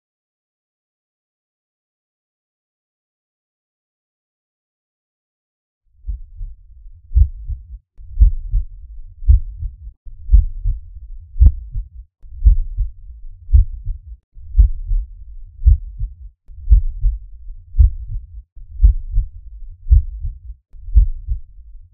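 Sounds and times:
heartbeat thumps: 6.1 - 6.5, 7.1 - 10.8, 11.4 - 21.5.

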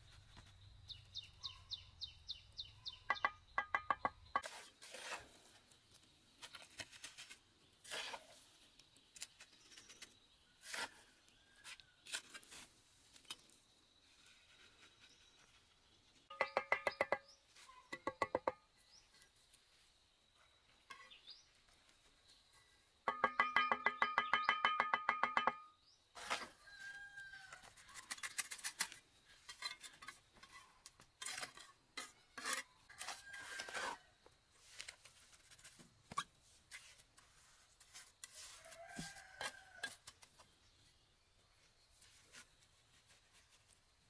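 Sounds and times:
rooster crowing: 32.9 - 34.0, 38.5 - 40.0.

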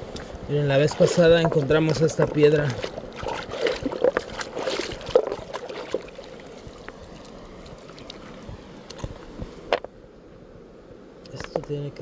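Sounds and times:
river trickling over rocks: 0.0 - 9.9
hand splashing in water: 2.6 - 6.4.

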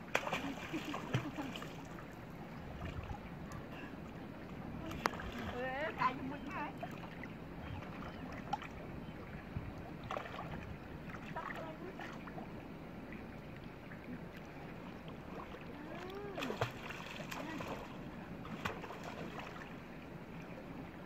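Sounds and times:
water sloshing and lapping: 0.0 - 21.0
voices calling: 3.3 - 9.3.

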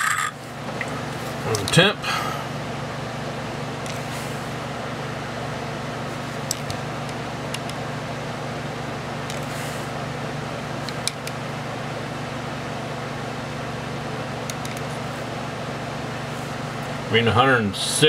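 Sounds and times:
fan hum: 0.0 - 18.0.

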